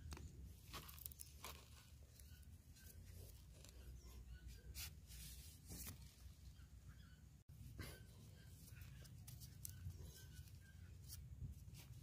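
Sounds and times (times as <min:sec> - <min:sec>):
twigs clicking and scraping: 0:00.0 - 0:03.9.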